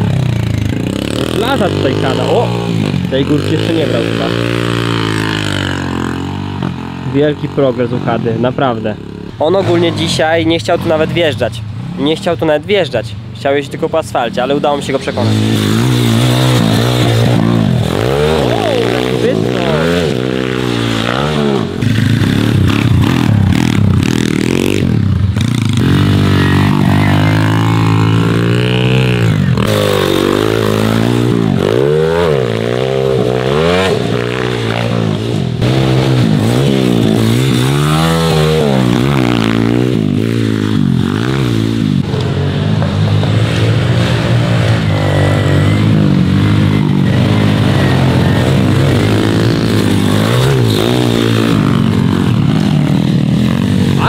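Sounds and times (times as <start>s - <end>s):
dirt bike engines revving: 0.0s - 54.0s.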